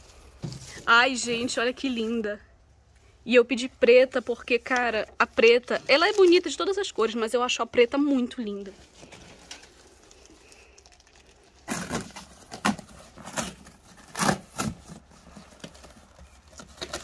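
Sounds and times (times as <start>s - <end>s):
cardboard box tearing: 11.6s - 17.0s.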